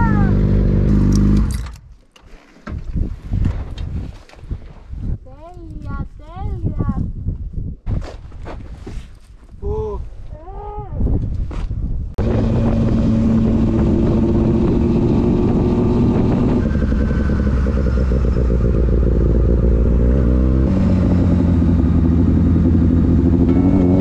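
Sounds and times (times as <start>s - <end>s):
motorcycle engine running: 12.2s - 24.0s.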